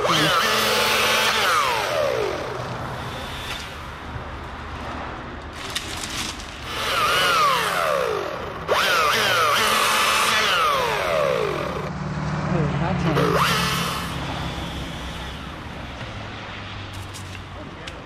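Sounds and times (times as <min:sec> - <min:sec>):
chainsaw revving: 0:00.0 - 0:03.9, 0:06.6 - 0:11.9, 0:12.5 - 0:15.9.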